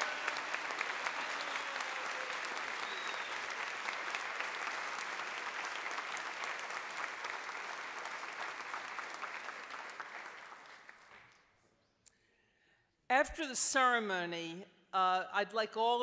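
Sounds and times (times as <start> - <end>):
audience applauding: 0.0 - 11.5.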